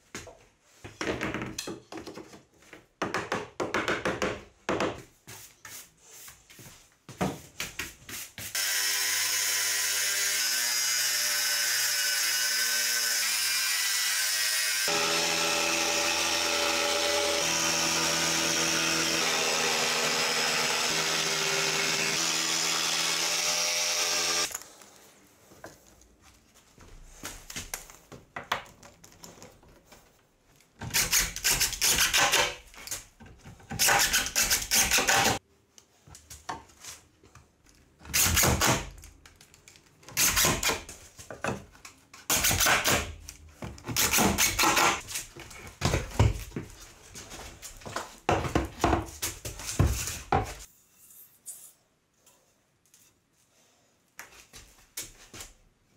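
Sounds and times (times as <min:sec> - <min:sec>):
jigsaw cutting wood: 0:08.6 - 0:24.6, 0:33.7 - 0:35.4.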